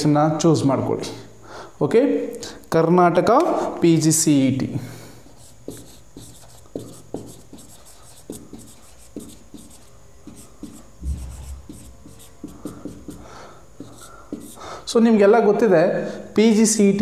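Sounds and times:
marker writing on whiteboard: 0:05.3 - 0:14.8
low thump: 0:11.0 - 0:12.0.

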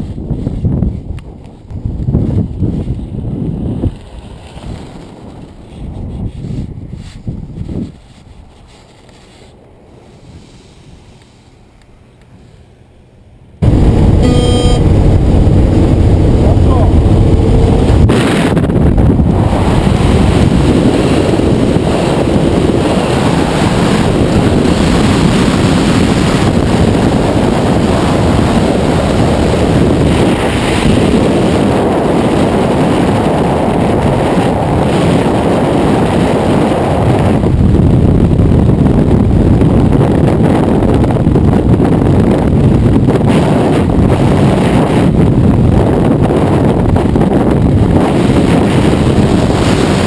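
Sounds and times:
wind rushing over microphone: 0:00.0 - 0:50.0.

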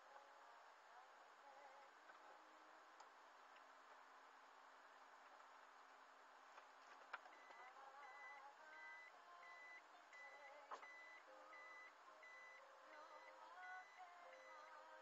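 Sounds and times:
short high beeps: 0:07.4 - 0:12.6.

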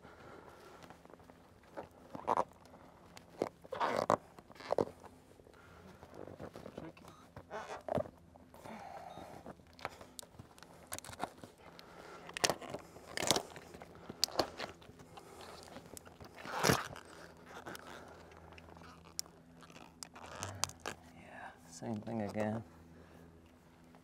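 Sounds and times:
rubber peeling off caulk: 0:12.3 - 0:21.0.

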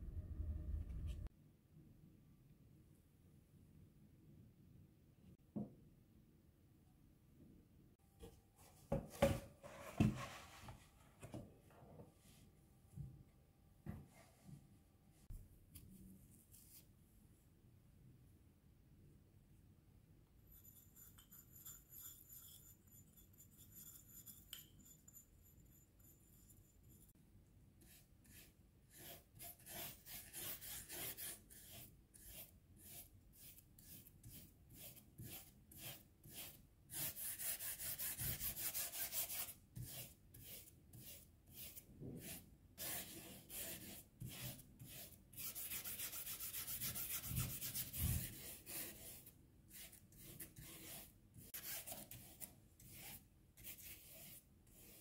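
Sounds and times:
bristle brush scrubbing on paper: 0:27.9 - 0:55.0.

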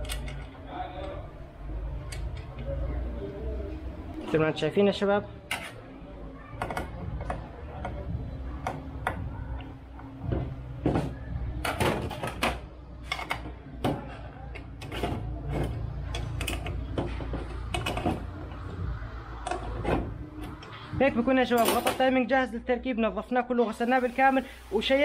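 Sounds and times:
metal tools clicking and knocking: 0:00.0 - 0:01.2, 0:11.6 - 0:18.3.

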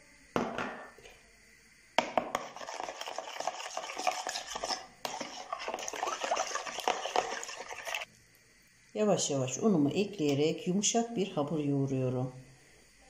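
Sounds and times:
fork beating eggs in a bowl: 0:02.0 - 0:08.1.

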